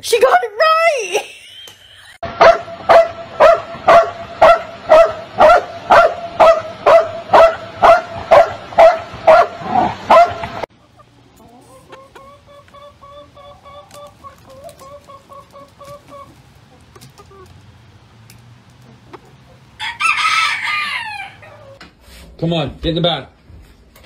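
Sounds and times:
dog barking: 0:02.4 - 0:10.5
hen clucking: 0:10.7 - 0:17.8, 0:18.6 - 0:21.8.

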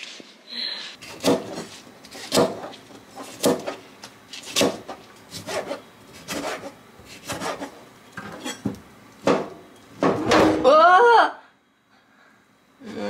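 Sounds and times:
knife scraping through food: 0:01.0 - 0:08.7.

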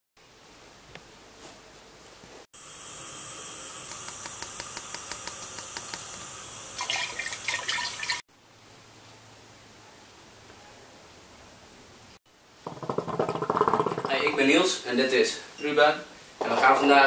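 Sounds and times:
water splashing and sloshing: 0:06.8 - 0:08.2.

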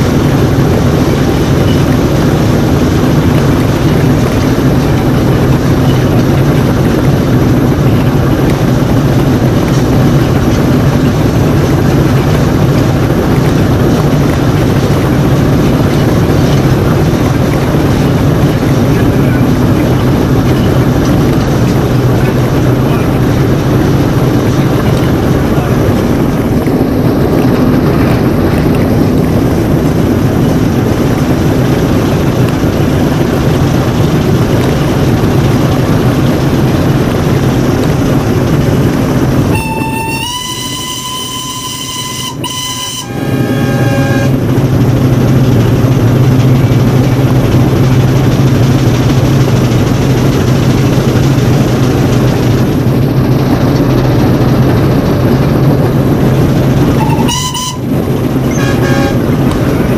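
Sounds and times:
low hum: 0:00.0 - 0:59.9
train running noise: 0:00.0 - 0:59.9
steam whistle chord: 0:39.5 - 0:44.4, 0:57.0 - 0:59.2.

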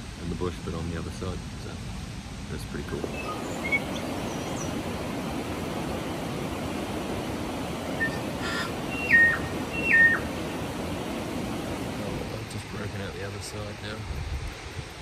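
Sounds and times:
bird whistling call: 0:03.1 - 0:04.8, 0:07.9 - 0:10.4.

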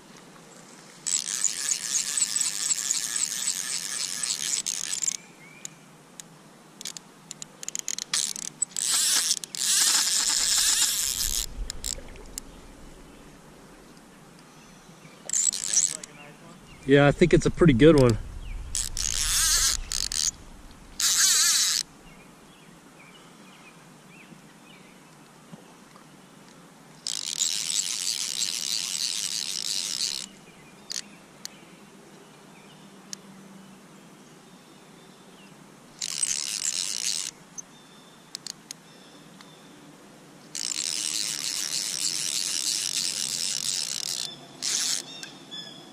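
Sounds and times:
fly reel clicks: 0:01.0 - 0:05.8, 0:06.8 - 0:13.2, 0:15.2 - 0:16.2, 0:17.9 - 0:21.9, 0:27.0 - 0:31.1, 0:36.0 - 0:37.3, 0:38.4 - 0:38.7, 0:40.6 - 0:45.3
fly line hissing: 0:08.8 - 0:13.9, 0:18.2 - 0:22.0.

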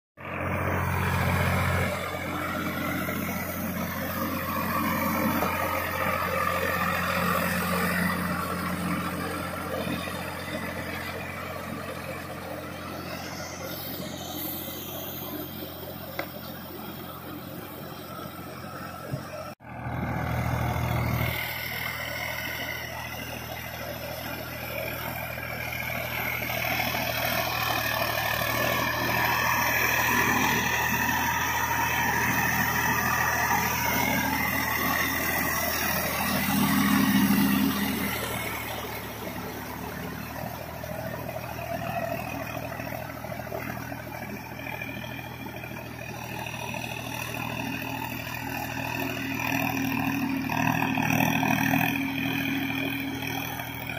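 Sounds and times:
tractor diesel engine under load: 0:00.2 - 0:53.9.

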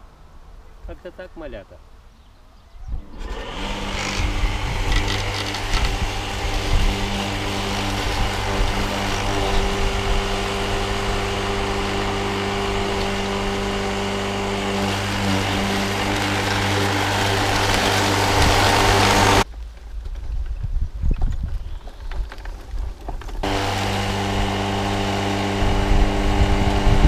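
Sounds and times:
electric lawn mower buzzing: 0:03.0 - 0:19.4, 0:23.4 - 0:27.0.

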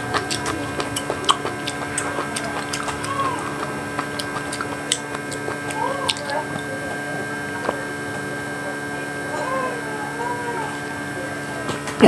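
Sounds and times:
chewing mouth clicks and smacks: 0:00.0 - 0:08.2
steady electrical hum: 0:00.0 - 0:12.0.

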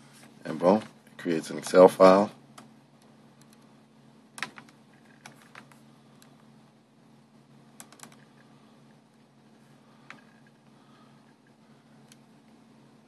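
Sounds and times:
faint low hum: 0:00.0 - 0:13.0
laptop clicks: 0:04.4 - 0:05.7, 0:07.8 - 0:08.3.

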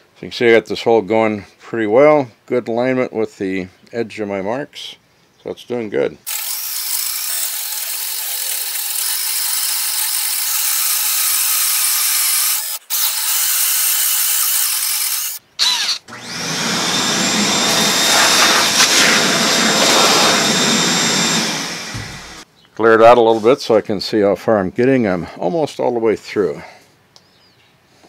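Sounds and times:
drill boring through wood: 0:06.3 - 0:22.4
vacuum hose whining: 0:15.6 - 0:22.4.

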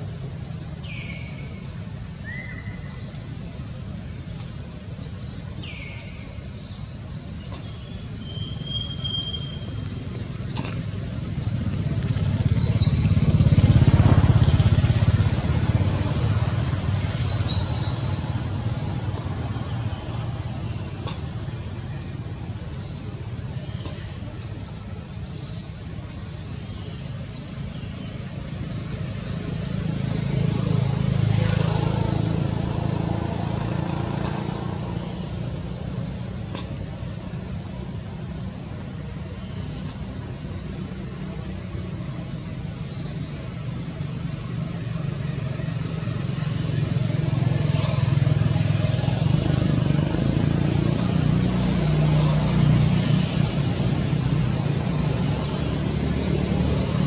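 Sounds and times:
vehicle engine rumbling: 0:00.0 - 0:57.0
bird chirps: 0:05.2 - 0:11.3.

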